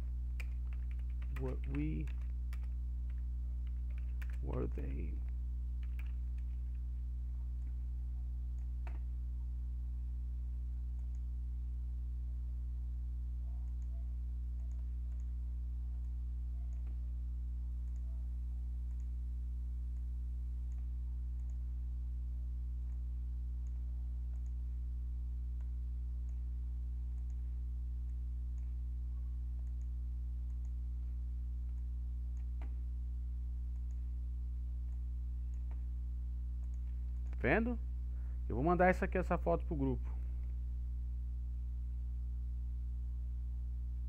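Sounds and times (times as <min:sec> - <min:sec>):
low electrical hum: 0:00.0 - 0:44.0
faint mouse clicks: 0:08.5 - 0:09.1, 0:10.9 - 0:11.3, 0:13.6 - 0:15.4, 0:16.0 - 0:17.0, 0:17.8 - 0:18.1, 0:18.8 - 0:19.2, 0:19.9 - 0:21.6, 0:22.8 - 0:24.6, 0:25.6 - 0:26.5, 0:27.1 - 0:27.4, 0:28.0 - 0:28.8, 0:29.6 - 0:30.8, 0:31.6 - 0:32.8, 0:33.7 - 0:34.1, 0:34.8 - 0:35.9, 0:36.6 - 0:37.4.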